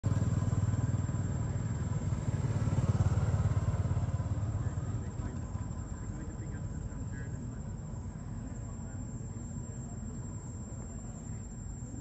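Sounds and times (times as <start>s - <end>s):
motorcycle engine running: 0.0s - 7.0s.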